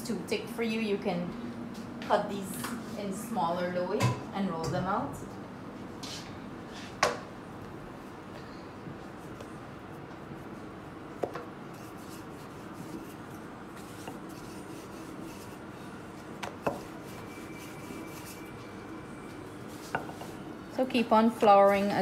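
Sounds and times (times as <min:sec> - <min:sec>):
rolling pin rolling dough: 0:09.1 - 0:22.0.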